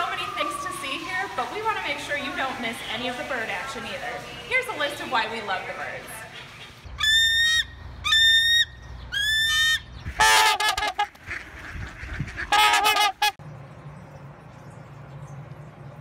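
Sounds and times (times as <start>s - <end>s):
low steady hum: 0.0s - 16.0s
swan honking: 9.2s - 13.4s.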